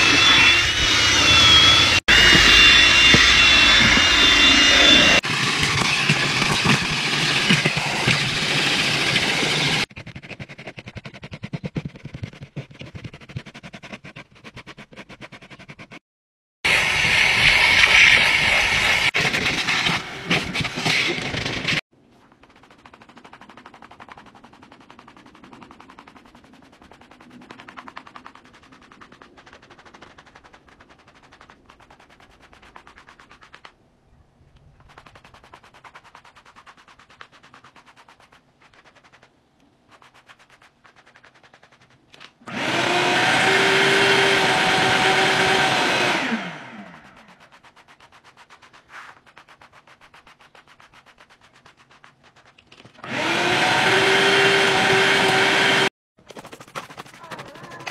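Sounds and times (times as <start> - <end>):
shop vacuum running: 0.0 - 9.9, 16.7 - 21.8, 42.5 - 47.2, 53.0 - 55.9
brush scraping carpet mat: 0.0 - 16.0, 17.0 - 33.7, 34.8 - 57.9.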